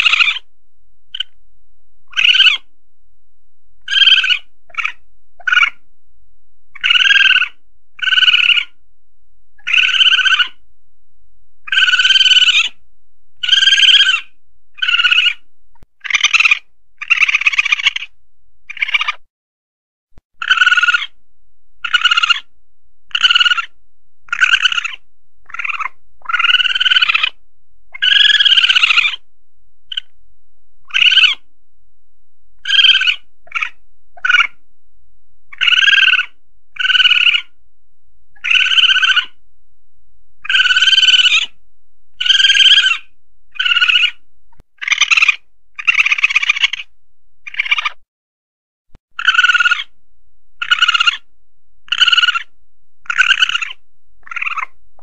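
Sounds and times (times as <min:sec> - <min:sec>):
civet calls: 0:00.0 - 0:00.5, 0:01.1 - 0:01.4, 0:02.0 - 0:02.7, 0:03.8 - 0:05.9, 0:06.7 - 0:08.8, 0:09.6 - 0:10.6, 0:11.6 - 0:12.8, 0:13.4 - 0:19.3, 0:20.4 - 0:21.2, 0:21.8 - 0:22.5, 0:23.1 - 0:29.3, 0:29.9 - 0:30.2, 0:30.8 - 0:31.5, 0:32.6 - 0:34.6, 0:35.5 - 0:37.6, 0:38.3 - 0:39.4, 0:40.4 - 0:44.2, 0:44.8 - 0:48.0, 0:49.1 - 0:50.0, 0:50.6 - 0:54.8.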